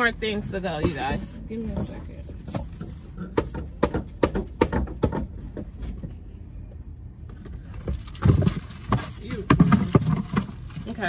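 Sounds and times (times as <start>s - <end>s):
box rubbing and knocking on phone: 0.7s - 6.2s
cardboard packaging rustling: 7.6s - 11.0s.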